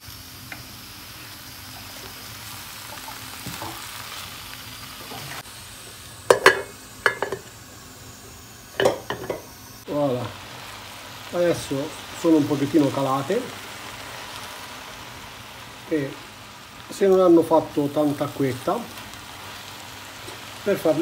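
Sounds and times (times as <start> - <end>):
vegetables sizzling in a frying pan: 0.0 - 21.0
spatula and lid clattering on pan: 6.3 - 7.5, 8.8 - 9.4.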